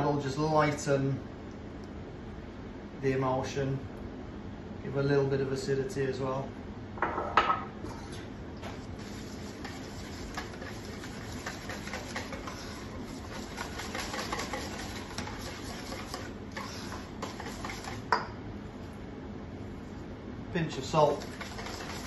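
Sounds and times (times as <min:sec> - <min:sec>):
whisk scraping metal bowl: 0:08.8 - 0:18.2, 0:20.8 - 0:22.0
whisk clacking on bowl: 0:09.0 - 0:18.2, 0:21.0 - 0:22.0.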